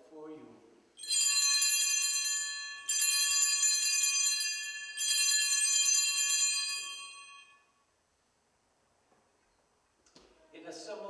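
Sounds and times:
small hand bells ringing: 0:01.0 - 0:07.7.

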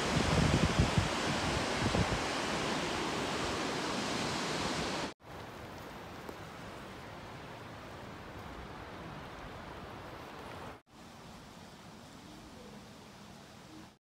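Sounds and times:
wind buffeting microphone: 0:00.0 - 0:05.0
rushing wind: 0:00.0 - 0:05.2
even hiss: 0:10.3 - 0:14.0.

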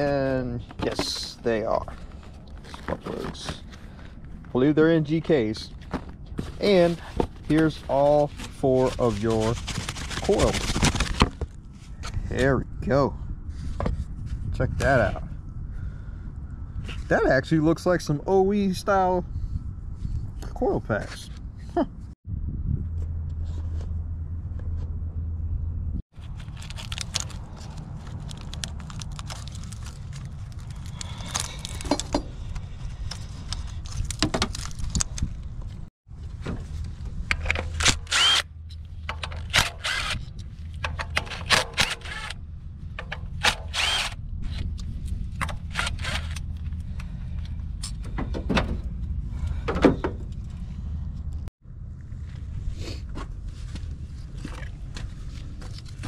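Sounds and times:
low rumble: 0:21.4 - 0:39.2
cordless power driver running: 0:37.9 - 0:38.4, 0:39.4 - 0:40.2, 0:41.7 - 0:42.4, 0:43.4 - 0:44.2.

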